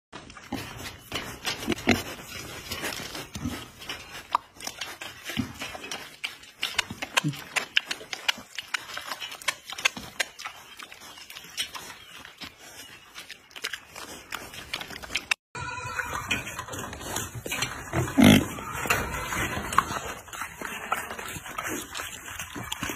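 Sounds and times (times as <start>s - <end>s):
pigs smacking and chewing: 0.2s - 22.9s
pig grunts: 17.9s - 22.9s.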